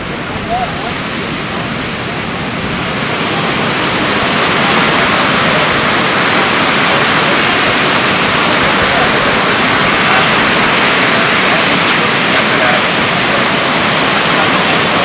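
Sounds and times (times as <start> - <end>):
heavy ocean surf: 0.0 - 15.0.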